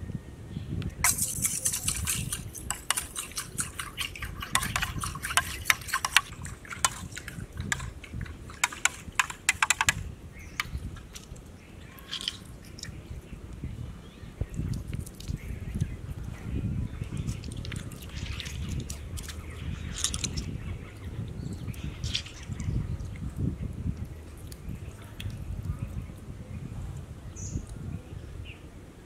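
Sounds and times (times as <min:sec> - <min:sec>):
food crackling in hot oil: 0:01.0 - 0:08.8.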